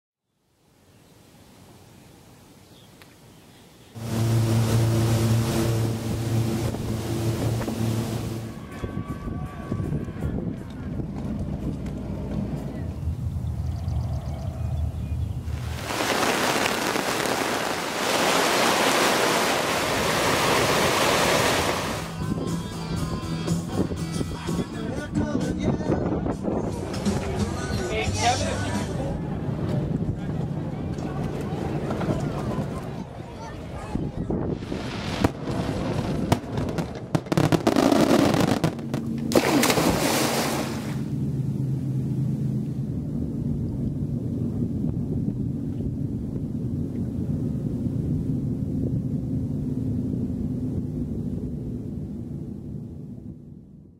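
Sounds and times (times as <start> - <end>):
steady low hum: 4.0 - 8.6, 38.7 - 53.9
sizzling crackle: 15.5 - 20.6
fireworks exploding: 15.5 - 22.1, 34.7 - 39.4
heavy rain pouring onto water: 15.6 - 22.1.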